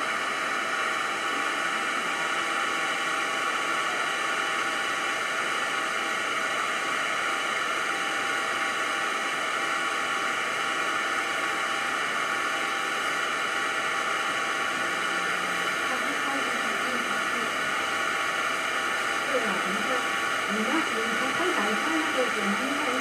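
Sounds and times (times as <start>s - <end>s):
faint constant tones: 14.3s - 23.0s.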